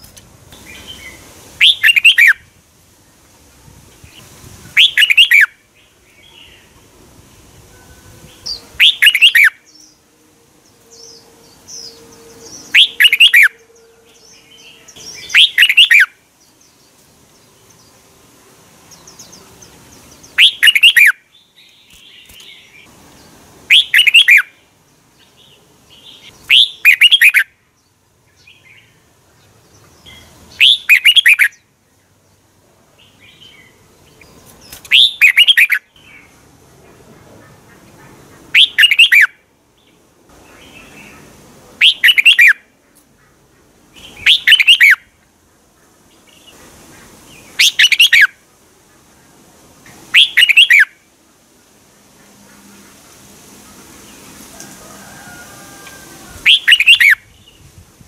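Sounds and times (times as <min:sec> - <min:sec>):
bulbul singing: 0:00.5 - 0:02.5, 0:04.0 - 0:06.8, 0:07.6 - 0:18.1, 0:18.8 - 0:31.7, 0:32.4 - 0:36.4, 0:38.5 - 0:42.7, 0:43.9 - 0:45.2, 0:47.3 - 0:48.4, 0:50.1 - 0:51.0, 0:56.4 - 0:57.7
soft bird chirps: 0:00.6 - 0:02.4, 0:10.7 - 0:18.0, 0:18.9 - 0:24.6.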